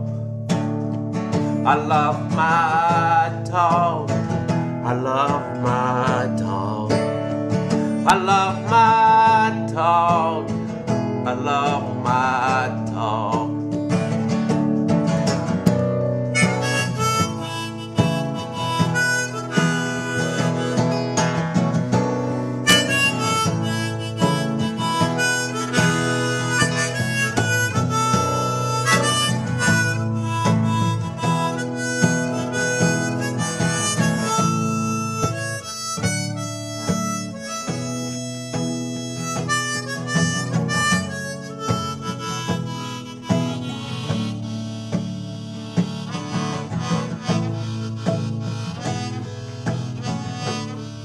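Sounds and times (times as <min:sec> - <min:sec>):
acoustic guitar: 0:00.0 - 0:51.0
harmonica solo: 0:15.9 - 0:51.0.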